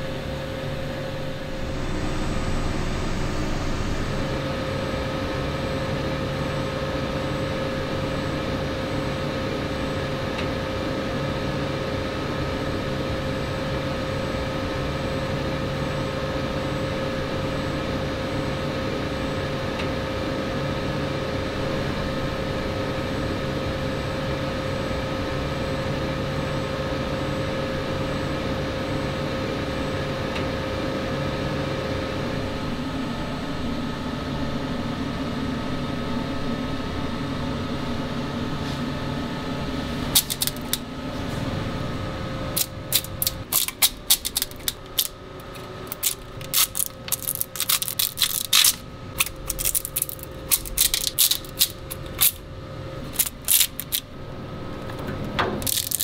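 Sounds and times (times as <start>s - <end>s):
wash machine humming: 0.0s - 17.8s, 39.5s - 56.0s
supports breaking off with clicks: 40.2s - 40.8s, 42.6s - 52.4s, 53.1s - 54.0s, 54.8s - 56.0s.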